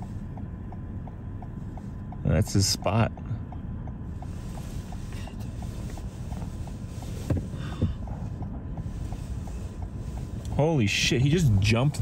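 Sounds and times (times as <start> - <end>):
faint rapid ticking: 0.0 - 12.0
strong wind buffeting car: 0.0 - 12.0.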